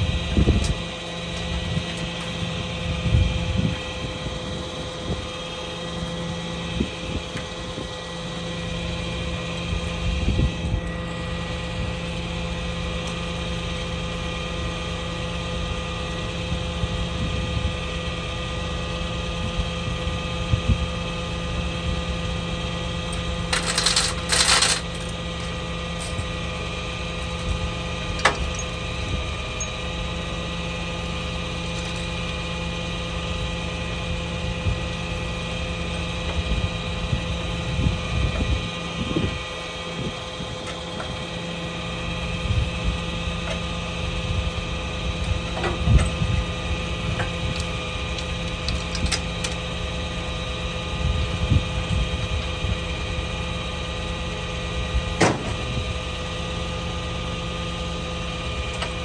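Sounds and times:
truck engine idling: 0:00.0 - 0:59.0
chains clinking: 0:23.5 - 0:25.1, 0:25.9 - 0:28.8, 0:31.0 - 0:32.2
short rattle: 0:23.5 - 0:25.2.

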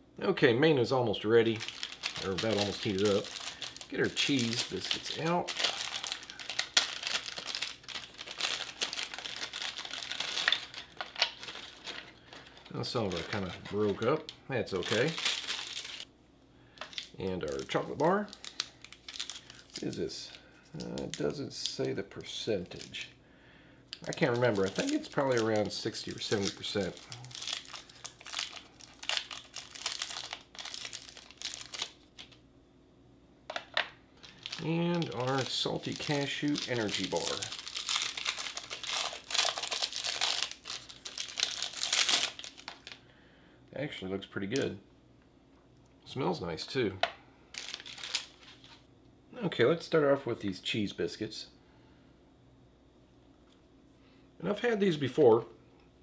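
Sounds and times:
foil wrapper crinkling: 0:01.2 - 0:16.1, 0:16.8 - 0:23.1, 0:23.9 - 0:32.4, 0:33.7 - 0:43.0, 0:47.5 - 0:48.8.

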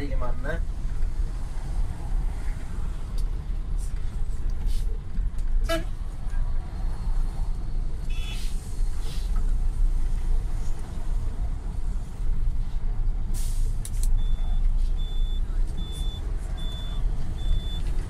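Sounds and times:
bus engine and tyre rumble: 0:00.0 - 0:18.0
short hiss: 0:08.2 - 0:09.4, 0:13.3 - 0:14.0
high electronic beep: 0:14.2 - 0:17.8.

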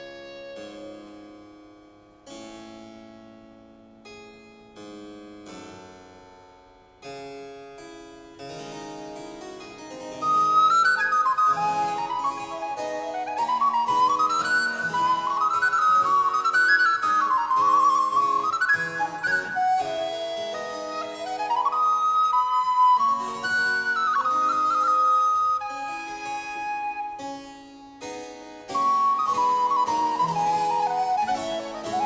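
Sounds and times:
recorder melody: 0:10.2 - 0:28.0, 0:28.6 - 0:32.0.

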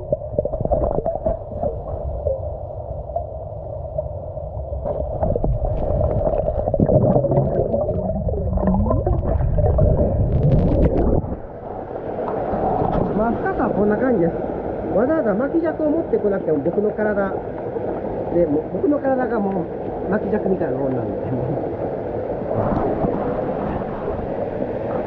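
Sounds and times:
gurgling bubbles: 0:00.0 - 0:02.4, 0:04.8 - 0:11.8, 0:22.4 - 0:25.0
muffled underwater rumble: 0:00.0 - 0:25.0
underwater clicks: 0:04.8 - 0:11.5.

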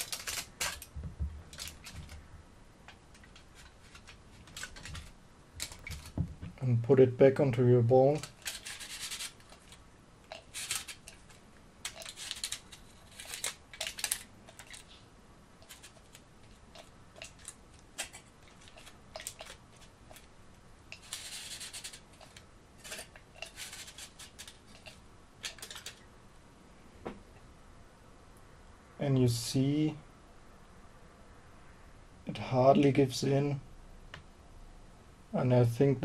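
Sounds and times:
aluminium foil crinkling: 0:00.0 - 0:02.2, 0:03.1 - 0:06.2, 0:08.1 - 0:15.0, 0:15.6 - 0:20.3, 0:20.9 - 0:26.0.

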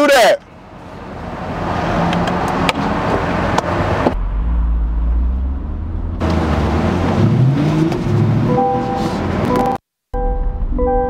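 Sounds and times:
car engine pulling away: 0:01.2 - 0:09.6.

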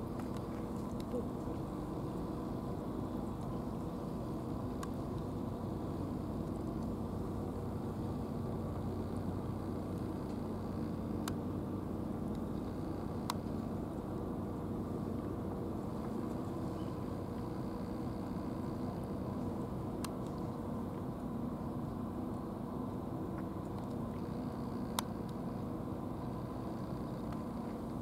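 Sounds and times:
engine droning steadily: 0:00.0 - 0:28.0
faint sharp clicks: 0:24.9 - 0:25.4.

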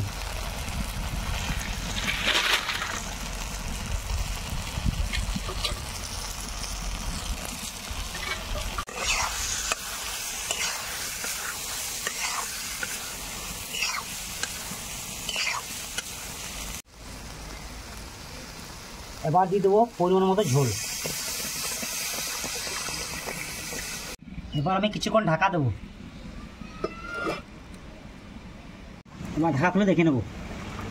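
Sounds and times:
food sizzling: 0:00.0 - 0:24.2
spatula scraping a pan: 0:08.1 - 0:13.0, 0:13.6 - 0:14.6, 0:15.2 - 0:16.1.

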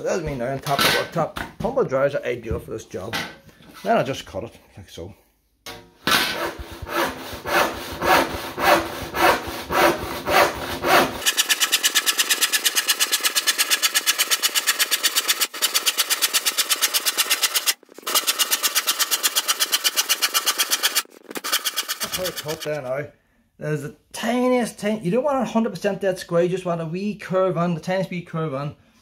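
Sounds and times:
handsaw sawing through worktop: 0:06.2 - 0:22.8.

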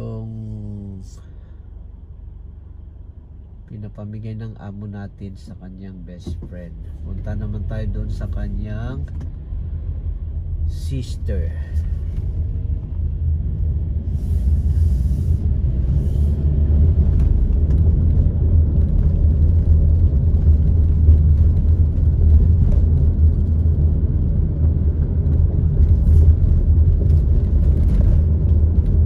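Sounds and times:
car engine and tyre noise: 0:00.0 - 0:29.0.

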